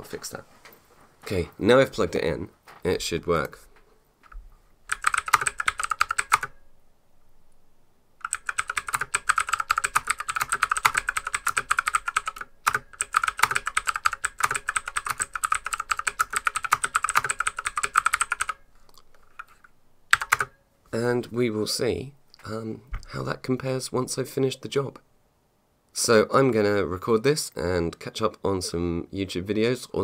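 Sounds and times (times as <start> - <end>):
mechanical keyboard typing: 4.9 - 6.6, 8.2 - 18.6, 19.3 - 20.6.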